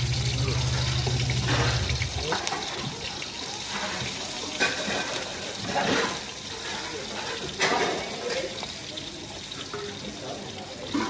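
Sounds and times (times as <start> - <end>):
low hum: 0.0 - 2.3
oil sizzling in wok: 0.0 - 11.0.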